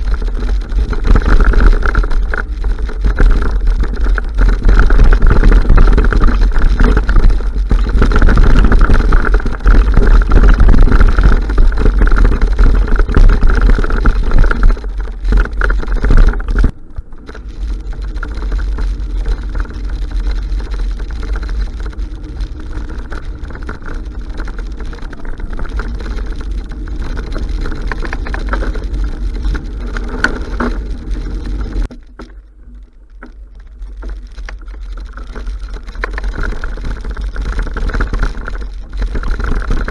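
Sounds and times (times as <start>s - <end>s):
wind buffeting microphone: 0.0s - 31.9s
bike rattling: 0.0s - 39.9s.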